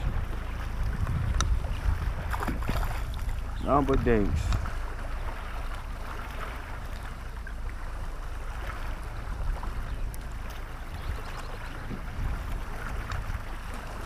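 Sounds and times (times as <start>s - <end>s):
waves lapping against kayak hull: 0.0s - 14.0s
wind rumble on microphone: 0.0s - 14.0s
faint light ticks: 1.0s - 1.6s, 10.0s - 10.6s, 13.0s - 13.3s.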